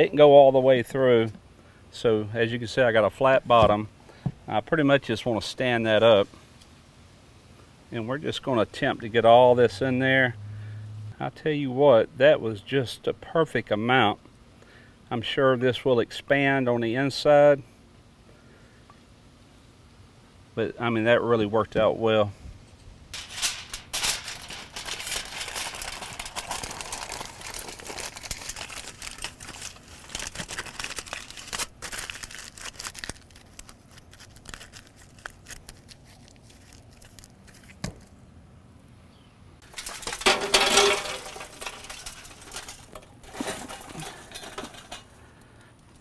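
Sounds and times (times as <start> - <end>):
aluminum foil crinkling: 23.2 - 38.2, 39.6 - 45.4.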